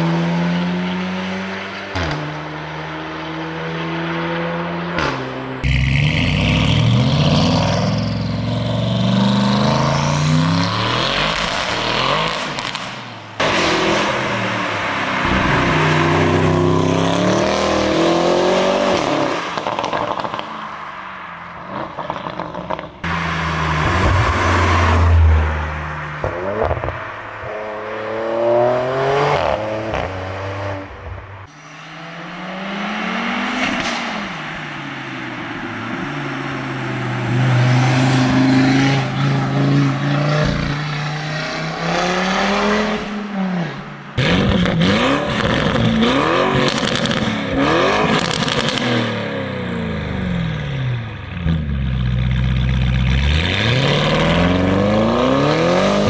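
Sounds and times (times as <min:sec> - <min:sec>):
car engines accelerating: 0:00.0 - 0:56.0
car driving past: 0:13.5 - 0:43.8.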